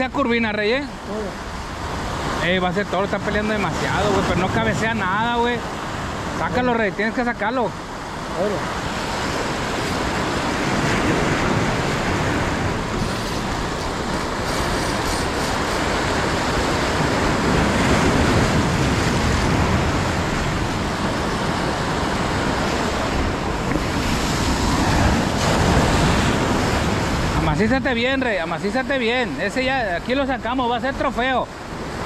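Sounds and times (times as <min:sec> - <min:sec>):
surf washing over rocks: 0:00.0 - 0:32.0
wind rumble on microphone: 0:08.0 - 0:32.0.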